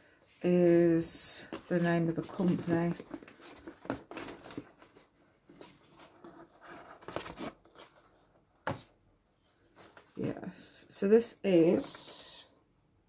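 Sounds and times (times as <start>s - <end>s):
cardboard and paper rustling: 1.0s - 10.4s.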